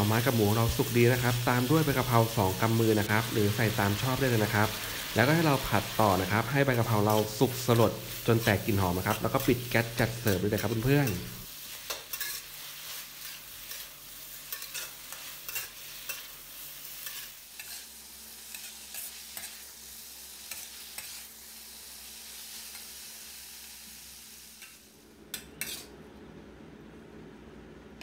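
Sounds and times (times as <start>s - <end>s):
food sizzling: 0.0s - 26.0s
metal spatula scraping a wok: 7.0s - 19.7s, 20.4s - 21.3s, 24.6s - 25.9s.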